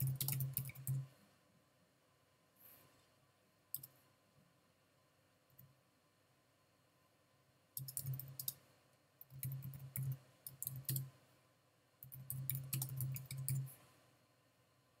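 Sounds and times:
computer keyboard typing: 0:00.0 - 0:01.1, 0:07.8 - 0:08.6, 0:09.2 - 0:11.1, 0:12.0 - 0:13.7.

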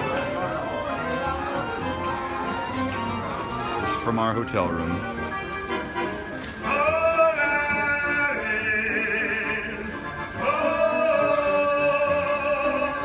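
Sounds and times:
man singing long notes: 0:06.6 - 0:13.0.

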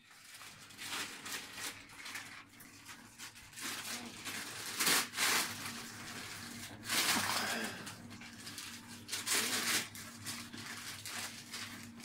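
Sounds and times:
wrapping paper crinkling and tearing: 0:00.0 - 0:12.0.

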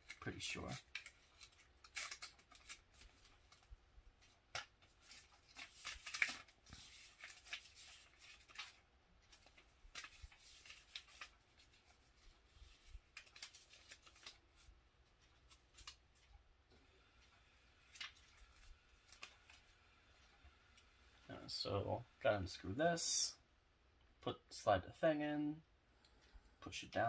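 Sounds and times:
paper pages rustling: 0:00.0 - 0:16.4, 0:17.2 - 0:20.4.

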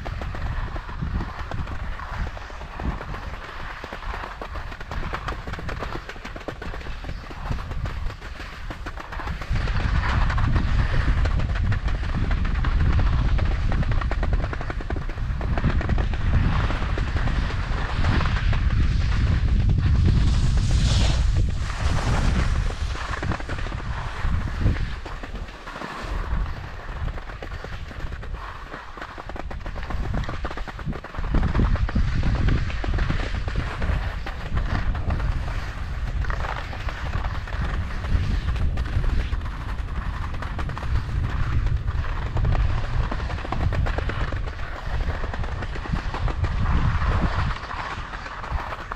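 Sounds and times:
skis scraping over snow: 0:00.0 - 0:48.9
low rumble: 0:15.2 - 0:25.1.

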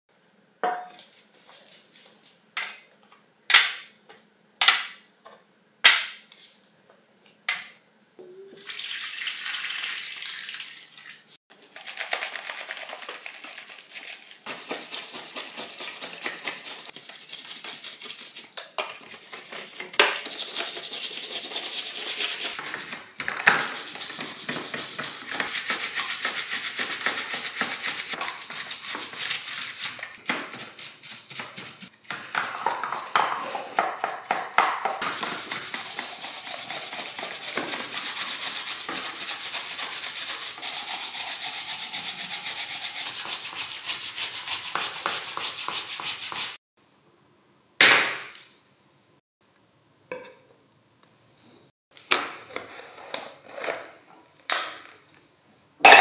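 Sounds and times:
brushes scrubbing in water: 0:11.6 - 0:18.5, 0:19.1 - 0:46.6.

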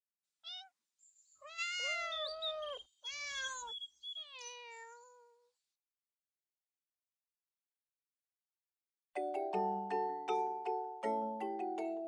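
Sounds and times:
cats meowing: 0:00.4 - 0:00.7, 0:01.4 - 0:05.4.

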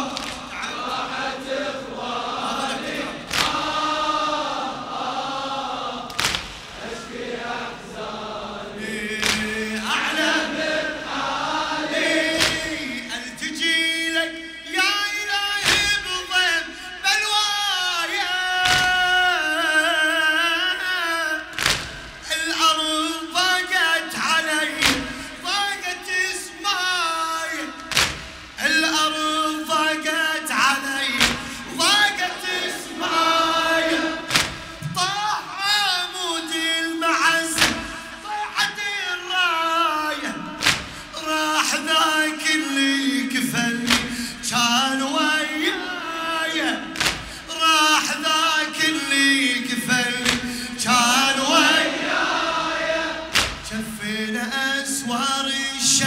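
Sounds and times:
chest slaps: 0:00.0 - 0:01.0, 0:02.5 - 0:03.8, 0:06.0 - 0:06.8, 0:09.1 - 0:10.3, 0:12.0 - 0:13.0, 0:15.6 - 0:16.0, 0:18.6 - 0:19.0, 0:21.5 - 0:22.2, 0:24.8 - 0:25.3, 0:27.8 - 0:28.6, 0:31.2 - 0:31.8, 0:32.5 - 0:35.1, 0:37.5 - 0:38.2, 0:40.6 - 0:41.1, 0:43.8 - 0:44.3, 0:47.0 - 0:47.4, 0:50.2 - 0:50.7, 0:53.2 - 0:53.8
men chanting in unison: 0:00.0 - 0:56.0
man singing an elegy: 0:41.1 - 0:51.8.

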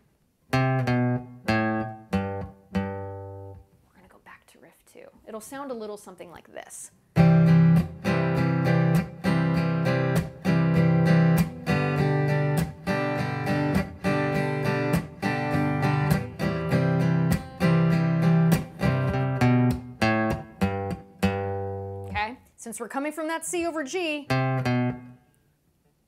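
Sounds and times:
acoustic guitar strumming: 0:00.5 - 0:03.7, 0:07.1 - 0:22.3, 0:24.3 - 0:25.3
guitar riff on bass strings: 0:07.2 - 0:22.3, 0:24.3 - 0:25.2.

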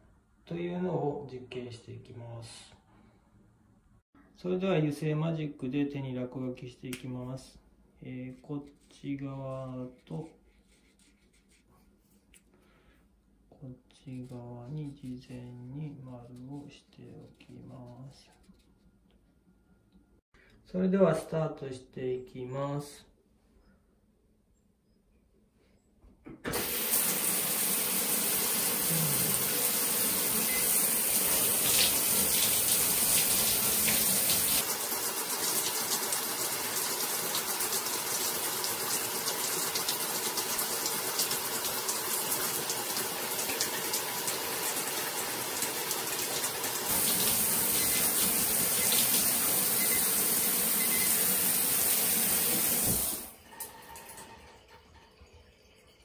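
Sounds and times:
shower spraying water: 0:26.5 - 0:53.4.

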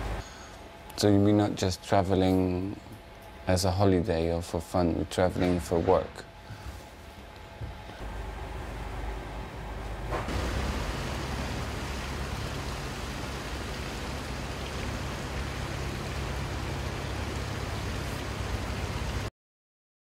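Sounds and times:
boat engine rumble: 0:08.0 - 0:19.3
rushing hiss: 0:10.3 - 0:19.3.

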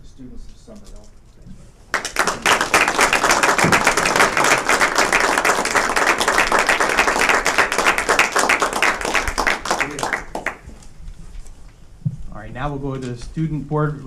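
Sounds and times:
people applauding: 0:01.9 - 0:10.9.

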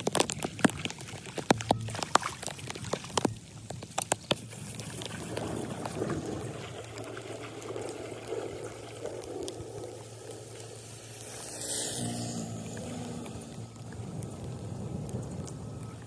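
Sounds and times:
floodwater sloshing and splashing: 0:00.0 - 0:16.0
low steady hum: 0:04.4 - 0:16.0.

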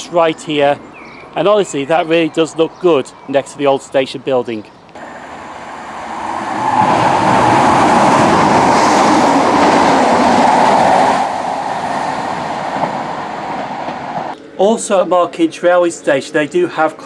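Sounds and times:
diesel train engines: 0:04.8 - 0:14.6
train wheels on rails: 0:05.0 - 0:14.4.

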